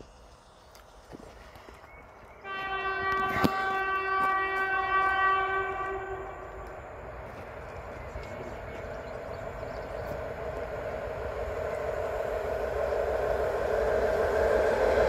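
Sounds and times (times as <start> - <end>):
locomotive horn blast: 2.4 - 6.6.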